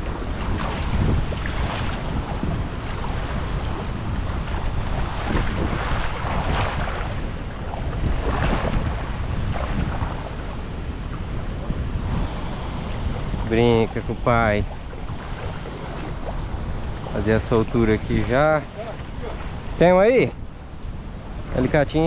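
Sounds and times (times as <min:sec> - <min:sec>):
river water splashing: 0:00.0 - 0:22.0
wind on microphone: 0:00.0 - 0:22.0
person wading: 0:14.0 - 0:19.6.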